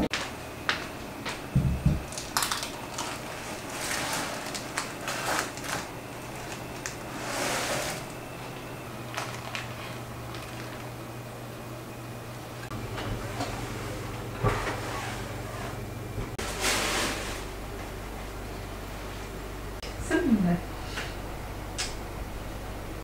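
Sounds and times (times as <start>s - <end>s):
baking paper crinkling: 2.0s - 11.0s.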